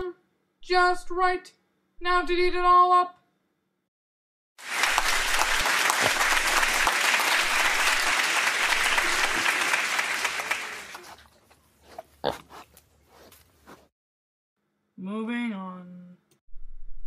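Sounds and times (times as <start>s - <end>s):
crowd applauding: 4.6s - 11.1s.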